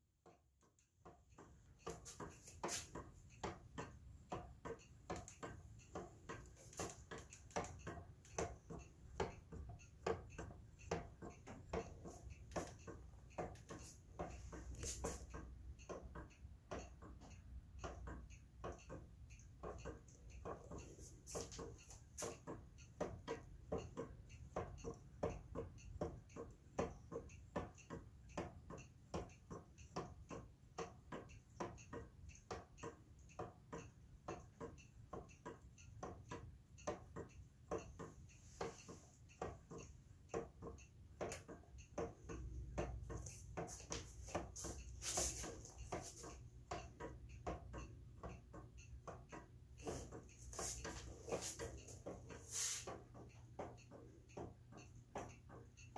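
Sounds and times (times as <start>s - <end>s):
wooden clock ticking: 0.0s - 55.9s
scuffling noise: 43.2s - 46.3s, 49.9s - 52.9s.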